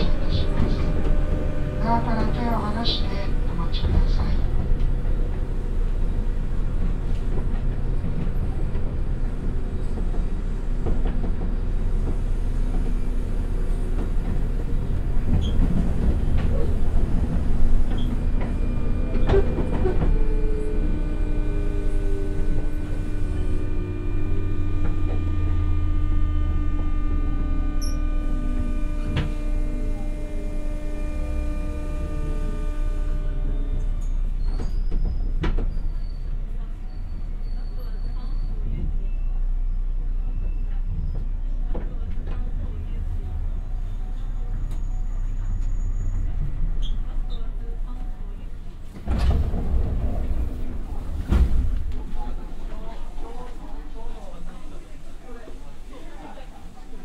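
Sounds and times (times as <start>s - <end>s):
traction motors whining downward: 0.0s - 5.1s, 12.7s - 36.2s
rail joint clicks: 0.0s - 39.2s, 40.2s - 56.0s
train wheels rumbling on rails: 0.0s - 57.0s.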